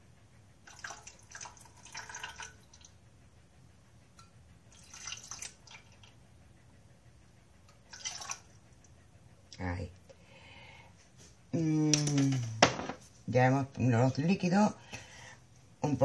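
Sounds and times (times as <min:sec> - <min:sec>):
liquid pouring into metal pan: 0:00.7 - 0:02.9, 0:04.7 - 0:05.8.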